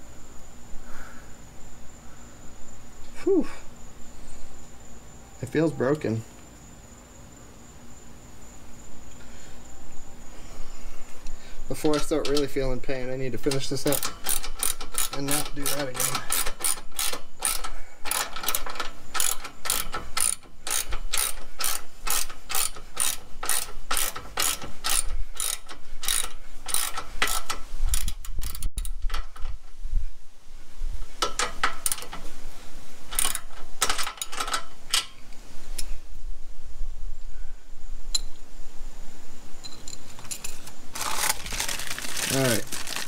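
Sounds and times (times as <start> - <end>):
ratchet wrench clicking: 11.8 - 12.7, 13.4 - 29.5, 33.1 - 35.1.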